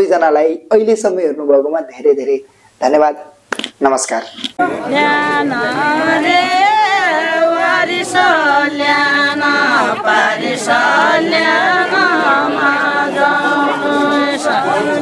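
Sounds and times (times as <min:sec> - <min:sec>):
group of women singing: 0:04.6 - 0:15.0.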